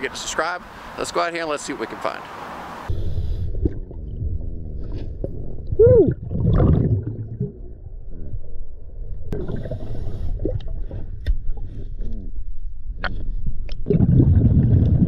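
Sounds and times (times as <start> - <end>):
underwater bubbles gurgling: 3.4 - 11.7, 13.8 - 15.0.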